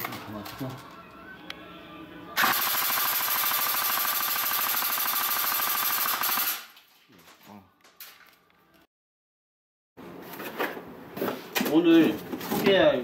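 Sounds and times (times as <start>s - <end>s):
airsoft gun full-auto burst: 2.4s - 6.7s.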